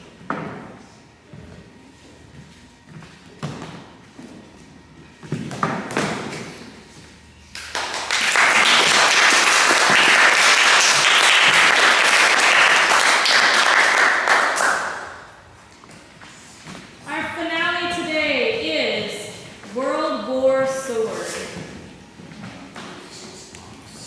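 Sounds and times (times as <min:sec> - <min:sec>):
audience applauding: 0:07.6 - 0:15.1.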